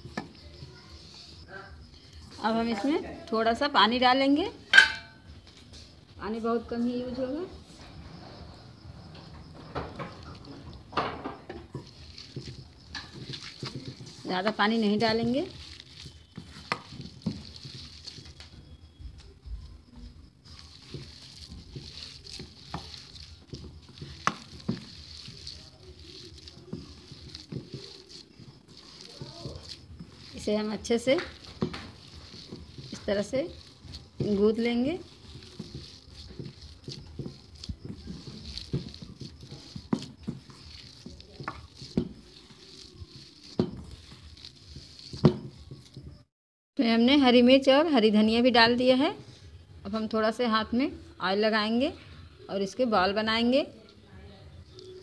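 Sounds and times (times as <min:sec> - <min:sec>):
hand mixing food in bowl: 0:00.0 - 0:04.1, 0:09.8 - 0:19.5, 0:20.3 - 0:46.3
sharp knocks on steel bowl: 0:04.7 - 0:05.2.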